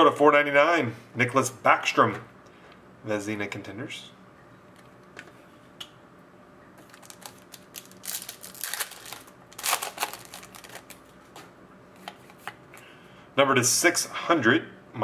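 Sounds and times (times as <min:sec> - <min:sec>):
foil wrapper crinkling and tearing: 0:06.8 - 0:11.2
cards being handled: 0:06.8 - 0:12.9.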